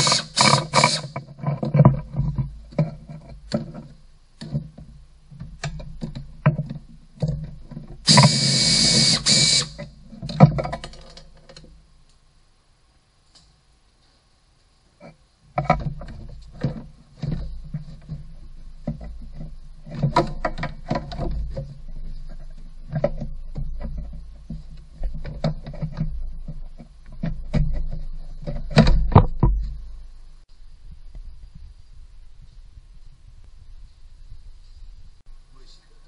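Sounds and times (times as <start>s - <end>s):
plastic panel knocking and scraping: 0.4s - 8.4s, 9.8s - 11.8s, 15.0s - 30.0s.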